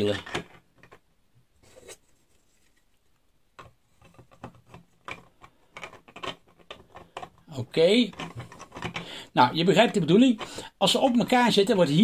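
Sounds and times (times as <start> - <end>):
plastic parts clicking and tapping: 0.1 - 1.1, 3.5 - 9.1.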